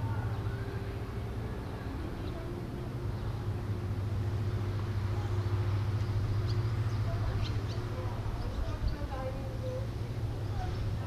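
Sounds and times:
low engine hum: 0:00.0 - 0:11.0.

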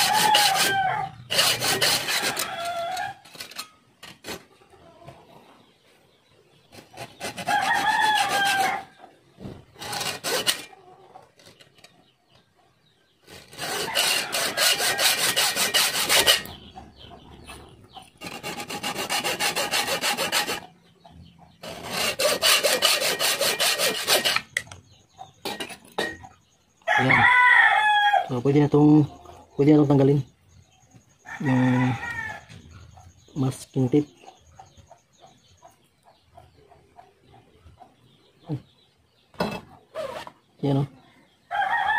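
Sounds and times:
rooster crowing: 0:00.0 - 0:01.3, 0:02.0 - 0:03.2, 0:07.4 - 0:08.9, 0:13.6 - 0:16.5, 0:26.9 - 0:28.3, 0:31.3 - 0:32.5, 0:41.5 - 0:41.9
hacksaw cutting metal tube: 0:00.0 - 0:04.4, 0:06.8 - 0:08.8, 0:09.8 - 0:10.7, 0:13.3 - 0:16.6, 0:18.2 - 0:20.7, 0:21.6 - 0:24.7, 0:25.4 - 0:26.3.

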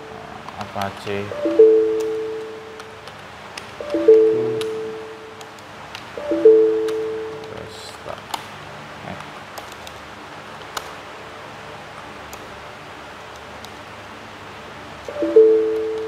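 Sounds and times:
low steady hiss: 0:00.0 - 0:16.0
keyboard keys clicking: 0:00.5 - 0:08.4
background music note: 0:01.3 - 0:03.0, 0:03.8 - 0:05.4, 0:06.2 - 0:07.7, 0:15.1 - 0:16.0.

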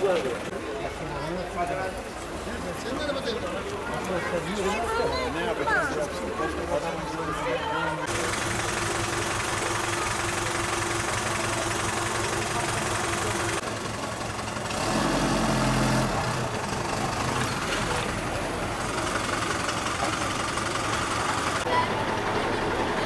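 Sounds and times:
street noise: 0:00.0 - 0:23.0
vehicle engine running: 0:08.0 - 0:23.0.

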